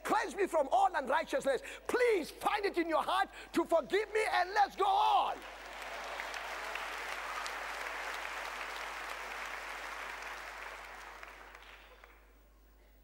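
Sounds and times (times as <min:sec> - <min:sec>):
audience applauding: 0:05.3 - 0:12.4.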